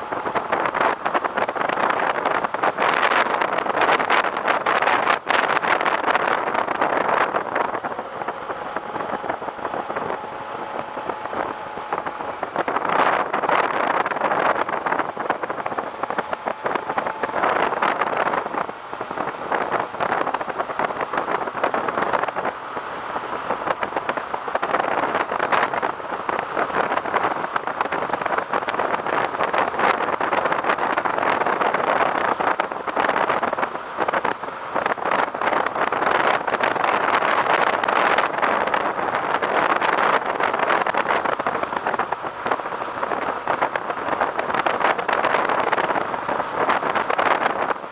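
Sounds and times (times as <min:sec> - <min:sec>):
wind buffeting microphone: 0:00.0 - 0:47.9.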